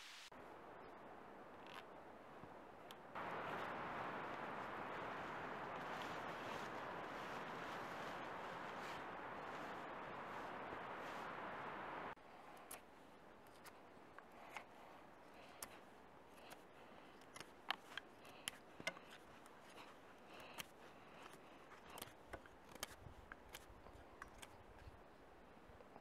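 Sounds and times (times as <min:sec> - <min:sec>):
knife shaving wooden stick: 0:12.6 - 0:25.0.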